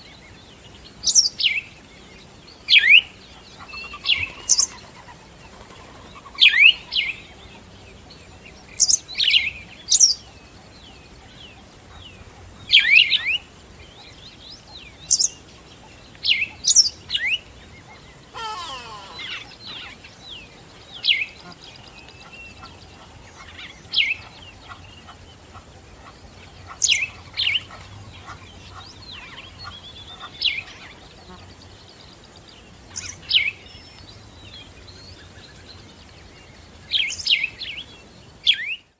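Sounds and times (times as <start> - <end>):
songbirds chirping: 0.0 - 38.9
downward sweeping bird call: 18.2 - 20.0.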